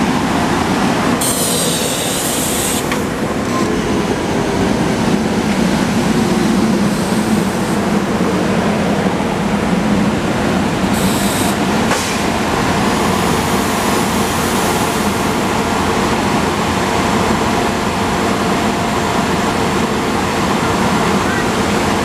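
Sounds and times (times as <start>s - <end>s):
railcar blowers humming: 0.0s - 22.0s
air hiss: 1.2s - 3.0s.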